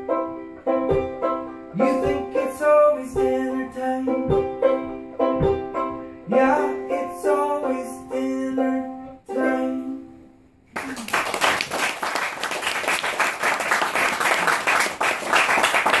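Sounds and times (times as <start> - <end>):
ukulele chords: 0.0 - 10.2
audience applause: 10.7 - 16.0.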